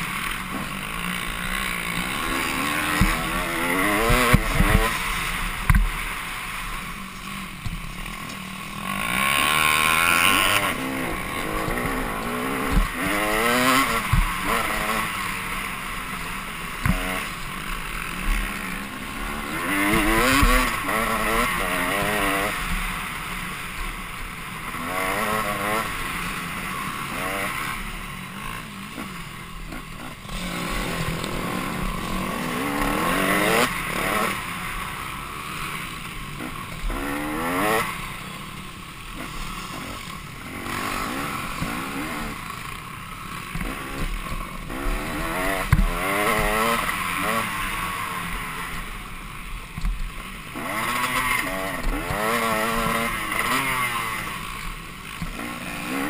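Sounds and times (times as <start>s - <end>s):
motorcycle engine revving: 0.0s - 56.0s
motorcycle knocking over bumps: 1.4s - 6.0s, 7.1s - 8.5s, 10.2s - 15.2s, 16.7s - 17.5s, 19.3s - 22.8s, 43.4s - 47.5s.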